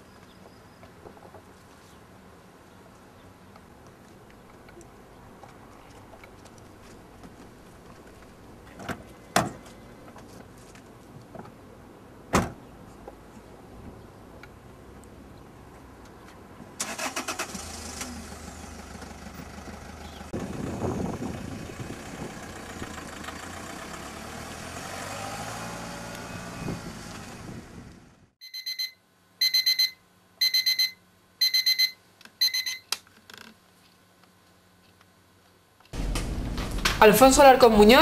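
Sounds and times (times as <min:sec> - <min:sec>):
car engine accelerating: 0:17.0 - 0:28.3
alarm clock beeping: 0:28.4 - 0:32.8.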